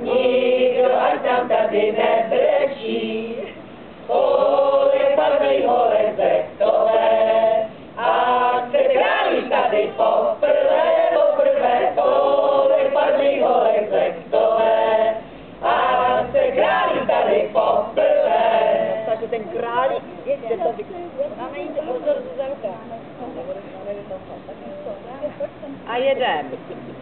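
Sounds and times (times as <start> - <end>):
group singing together: 0.0 - 19.5.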